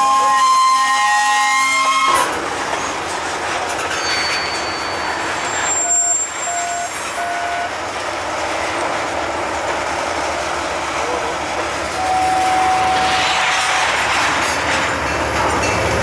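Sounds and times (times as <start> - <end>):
freight cars rolling on track: 0.0 - 16.0
short beeps: 4.2 - 7.7.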